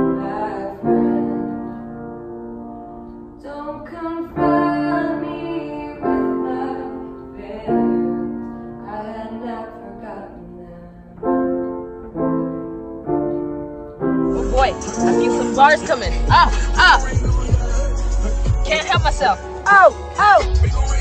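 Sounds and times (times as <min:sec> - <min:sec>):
woman singing: 0:00.0 - 0:01.8, 0:03.4 - 0:11.2, 0:14.4 - 0:21.0
grand piano chords: 0:00.0 - 0:21.0.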